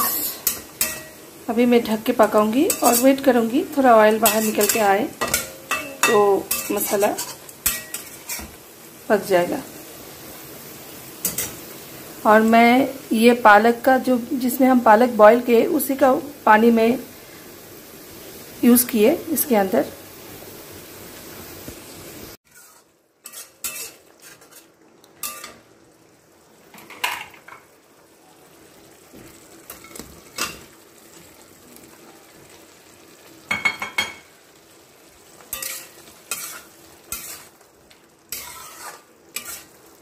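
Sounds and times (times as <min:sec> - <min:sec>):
spatula scraping a pan: 0:02.6 - 0:03.3, 0:04.2 - 0:08.6, 0:11.2 - 0:11.6, 0:22.4 - 0:25.6, 0:35.4 - 0:37.6, 0:38.3 - 0:39.9.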